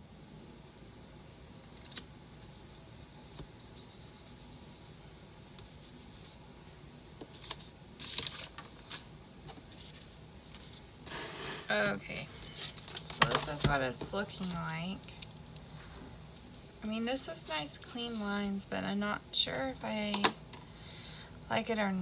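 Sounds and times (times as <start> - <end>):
fingers rubbing sticker on paper: 2.5 - 4.9.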